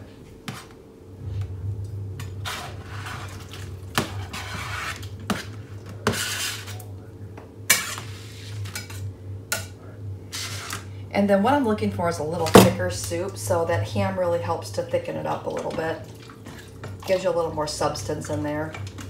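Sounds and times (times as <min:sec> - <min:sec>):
steady low hum: 0:00.0 - 0:19.0
knife scraping cutting board: 0:02.4 - 0:06.8, 0:07.7 - 0:09.0, 0:10.3 - 0:10.8.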